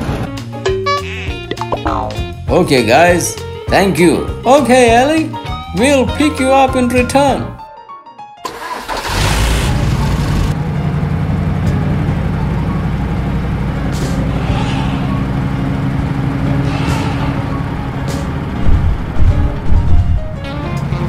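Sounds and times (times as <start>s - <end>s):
tractor engine running: 8.5s - 21.0s.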